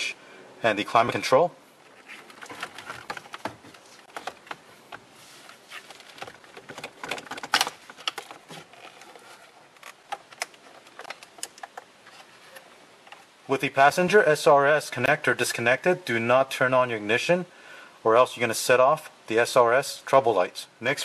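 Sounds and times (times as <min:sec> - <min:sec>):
plastic trim clicks and rattles: 0:06.1 - 0:08.5.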